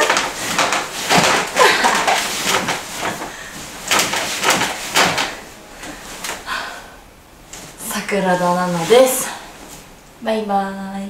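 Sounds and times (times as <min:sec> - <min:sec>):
knees thumping on mattress: 0:00.0 - 0:06.6.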